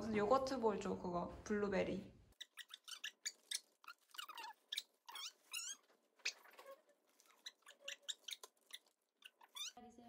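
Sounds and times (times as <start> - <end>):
dog whining in high squeaks: 2.4 - 9.8.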